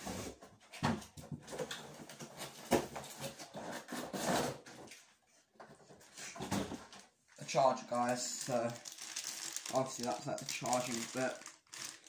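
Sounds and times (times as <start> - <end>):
packaging rustling: 7.3 - 12.0.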